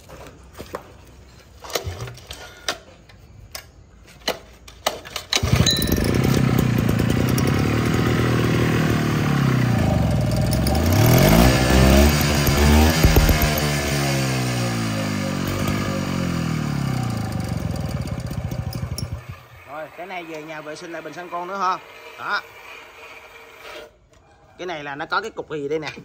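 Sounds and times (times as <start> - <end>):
small two-stroke engine running: 5.4 - 23.5
knocks and clicks: 10.5 - 13.9.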